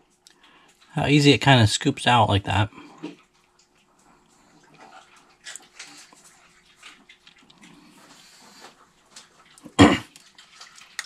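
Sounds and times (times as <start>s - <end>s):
person eating soft food: 2.7s - 11.0s.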